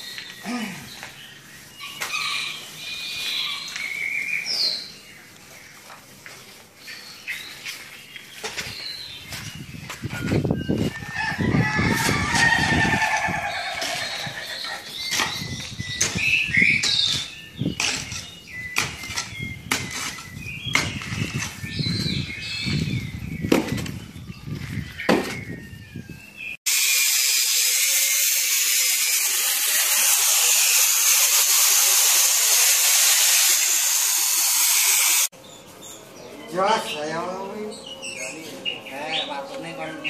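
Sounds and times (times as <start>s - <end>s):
bird chirps: 13.4s - 26.6s
angle grinder cutting steel: 26.7s - 35.3s.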